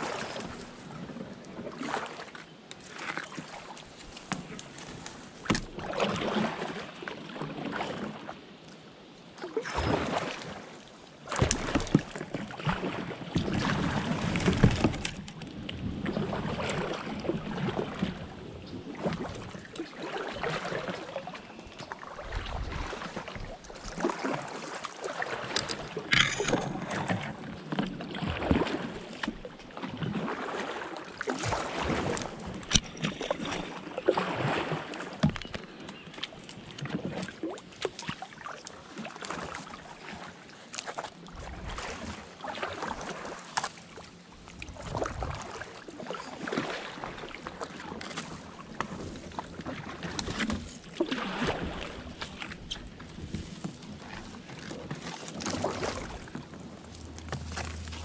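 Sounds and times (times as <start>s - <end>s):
paddle splashing and dripping: 0.0s - 58.0s
paddle knocks: 11.3s - 12.4s.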